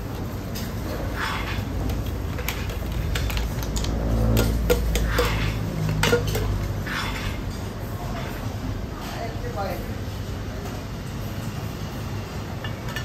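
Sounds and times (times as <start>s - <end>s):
metal pots knocking and clinking: 1.3s - 7.4s.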